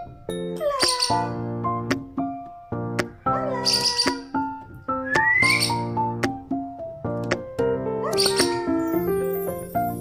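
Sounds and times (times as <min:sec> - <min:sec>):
piano chords music: 0:00.0 - 0:10.0
bird shrill chirps: 0:00.7 - 0:01.4, 0:03.5 - 0:04.4, 0:05.0 - 0:05.9.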